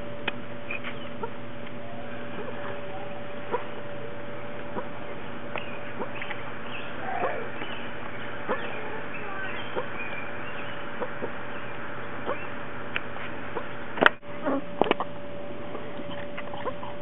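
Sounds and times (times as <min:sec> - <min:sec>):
steady background hiss: 0:00.0 - 0:16.9
puppies squeaking: 0:00.7 - 0:04.0, 0:05.6 - 0:10.2.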